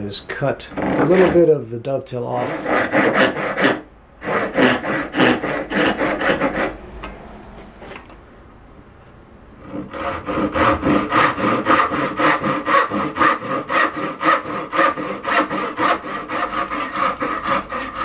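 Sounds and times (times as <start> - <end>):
backsaw cutting wood: 0.7 - 1.5, 2.4 - 6.8, 9.6 - 18.0.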